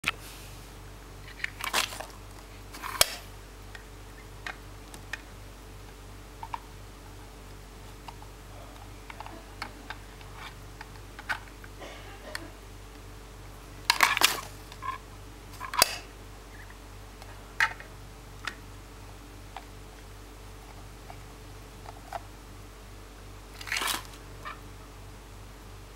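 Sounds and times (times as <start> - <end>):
faint steady hum: 0.0 - 25.9
plastic parts clicking and rattling: 1.2 - 5.3, 7.9 - 12.4, 13.8 - 16.0, 17.2 - 18.6, 23.5 - 24.6.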